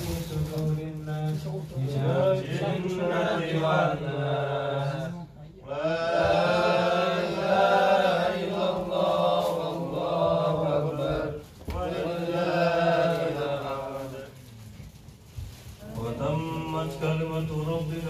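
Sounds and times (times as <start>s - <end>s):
man chanting melodically: 0.0s - 7.1s, 15.8s - 18.0s.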